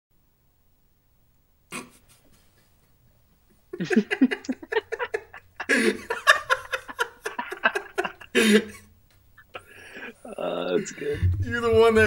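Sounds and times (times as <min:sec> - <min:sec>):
men laughing hard: 0:03.7 - 0:11.4.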